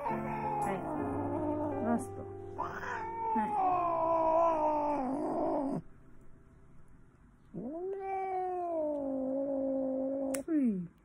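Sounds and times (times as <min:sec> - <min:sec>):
cat yowling angrily: 0:02.6 - 0:05.8.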